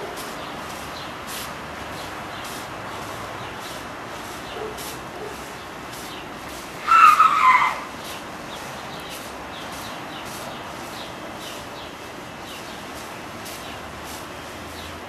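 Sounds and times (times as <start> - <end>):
steady background hiss: 0.0 - 15.0
high squeal: 6.8 - 7.8.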